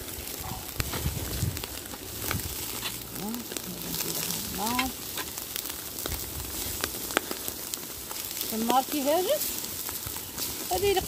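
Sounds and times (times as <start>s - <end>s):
chicken sizzling on a grill: 0.0s - 11.0s
fat popping and crackling in fire: 0.0s - 11.0s.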